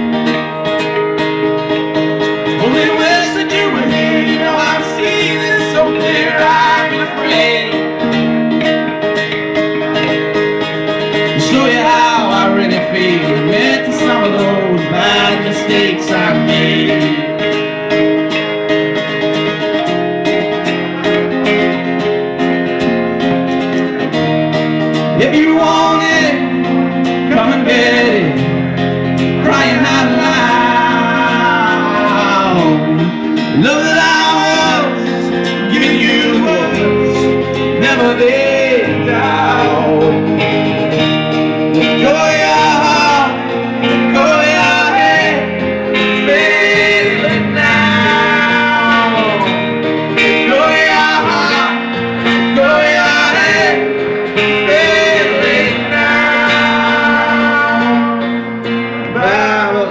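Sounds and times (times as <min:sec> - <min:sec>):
electric guitar: 0:00.0 - 0:59.9
low bass notes: 0:00.0 - 0:59.9
strummed acoustic guitar: 0:00.0 - 0:59.9
man singing: 0:02.4 - 0:08.3, 0:11.1 - 0:18.0, 0:24.9 - 0:59.9.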